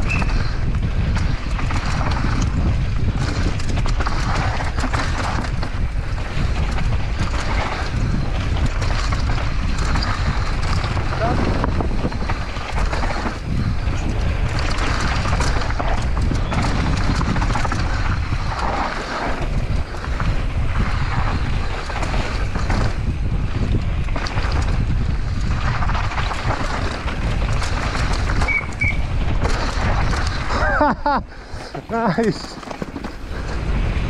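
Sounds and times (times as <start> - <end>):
bike clattering over bumps: 0.0 - 34.0
tyres rolling over dirt: 0.0 - 34.0
wind rushing over microphone: 0.0 - 34.0
short high squeaks: 28.4 - 29.1.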